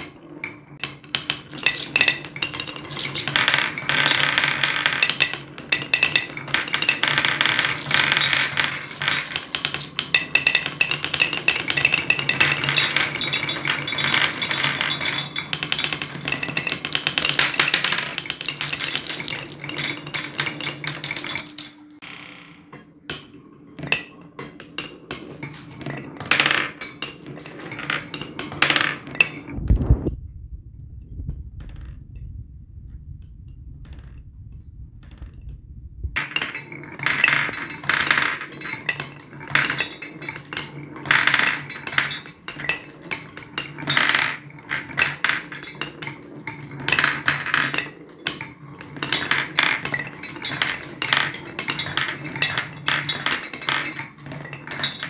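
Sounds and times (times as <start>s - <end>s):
marbles rattling on wooden track: 0.0s - 23.2s, 23.8s - 30.0s, 36.1s - 55.0s
low hum: 29.4s - 36.2s.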